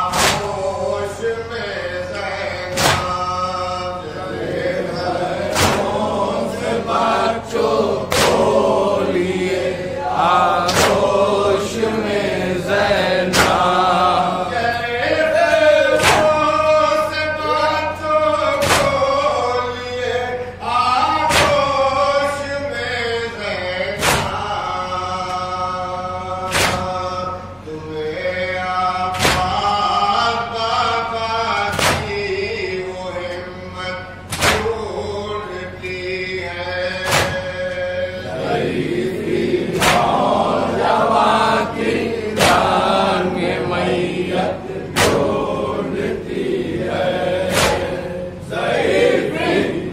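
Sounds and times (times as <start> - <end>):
men chanting in unison: 0.0 - 49.9
hands slapping chests: 2.8 - 3.2, 5.5 - 6.1, 10.6 - 11.1, 34.3 - 34.7, 37.1 - 37.4, 39.8 - 40.2, 45.0 - 45.4, 47.5 - 48.0.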